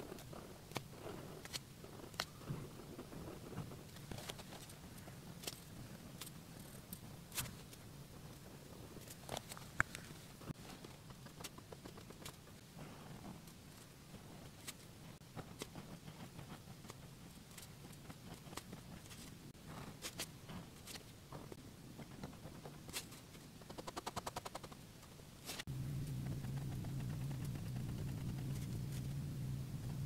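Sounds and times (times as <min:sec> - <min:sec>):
steady low hum: 0:00.0 - 0:30.0
pen scratching and tapping on paper: 0:10.6 - 0:13.4, 0:15.3 - 0:19.3, 0:20.0 - 0:24.8, 0:26.1 - 0:29.1.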